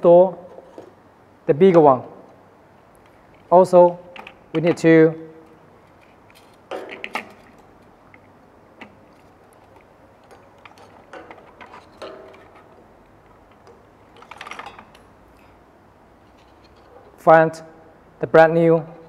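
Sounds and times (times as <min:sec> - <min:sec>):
clicks and rattles of cable handling: 0:02.0 - 0:15.1.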